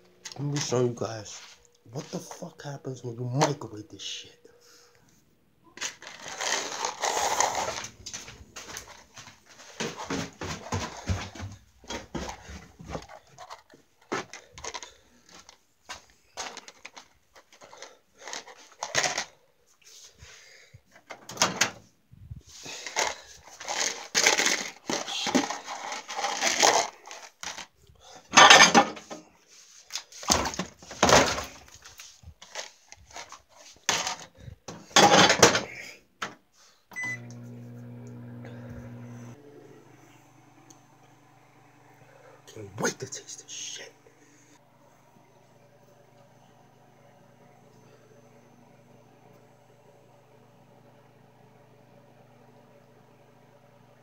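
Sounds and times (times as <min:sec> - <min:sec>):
microwave humming: 0:05.6 - 0:14.3, 0:36.9 - 0:54.0
plastic bowl handling clatter: 0:05.8 - 0:19.4, 0:22.7 - 0:29.2, 0:29.9 - 0:36.4
keypad beep: 0:37.0 - 0:37.2.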